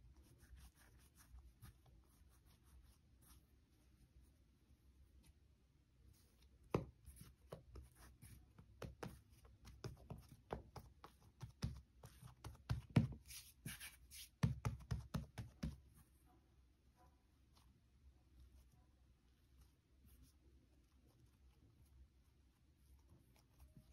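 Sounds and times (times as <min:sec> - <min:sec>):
hands patting dough: 0:06.4 - 0:15.9.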